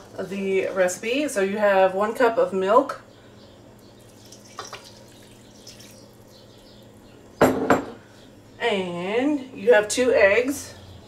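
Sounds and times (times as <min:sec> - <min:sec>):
milk pouring into bowl: 0:04.0 - 0:06.3
kitchenware clinking: 0:07.4 - 0:08.0.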